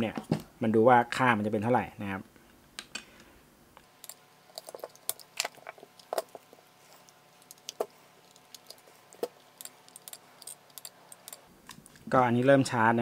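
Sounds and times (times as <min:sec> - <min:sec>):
plastic connectors clicking: 0:04.0 - 0:12.1.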